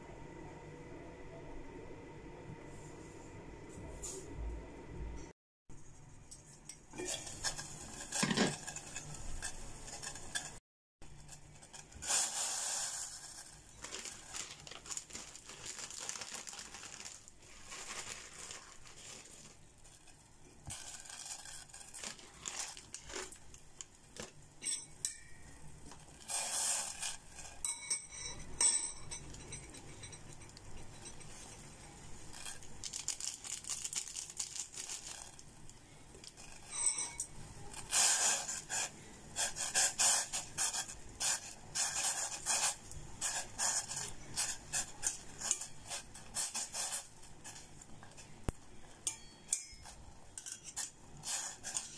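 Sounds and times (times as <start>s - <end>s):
boiling water: 6.2s - 15.7s, 16.3s - 33.4s, 34.2s - 51.9s
metal utensil scraping a pot: 6.4s - 13.7s, 26.0s - 32.7s, 36.3s - 48.4s, 49.0s - 51.9s.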